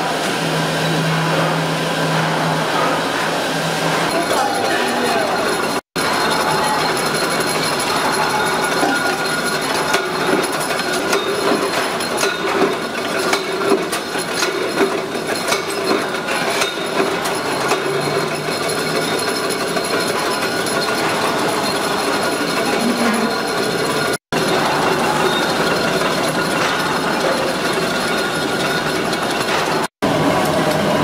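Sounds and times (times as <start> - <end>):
metal-pressing machinery din: 0.0 - 31.0
metallic clanks and knocks: 5.2 - 29.9.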